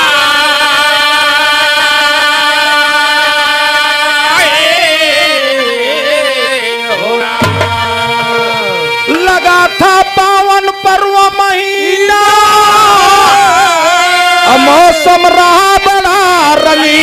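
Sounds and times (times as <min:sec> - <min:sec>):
hand drum strokes: 0:07.4 - 0:09.1.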